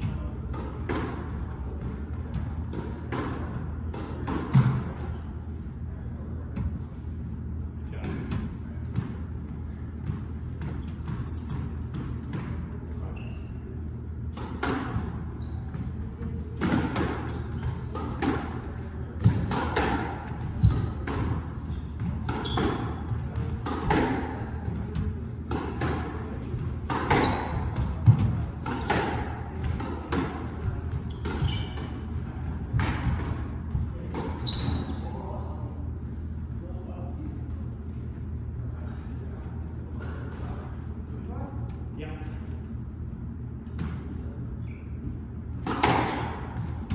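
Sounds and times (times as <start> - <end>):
squash ball hits echoing: 0.0 - 5.0, 14.3 - 35.0, 45.6 - 46.9
steady low hum: 0.0 - 46.9.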